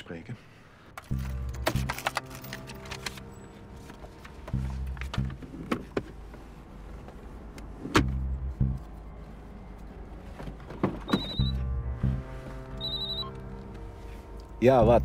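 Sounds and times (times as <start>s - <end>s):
mobile phone ringing: 11.1s - 11.6s, 12.8s - 13.4s.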